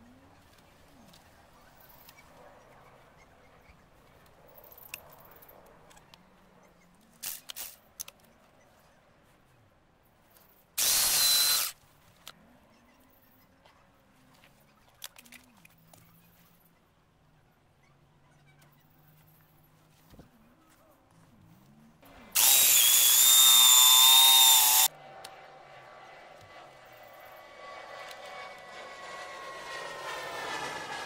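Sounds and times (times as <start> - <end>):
electric drill boring into soil: 10.8 - 11.8, 22.3 - 24.9.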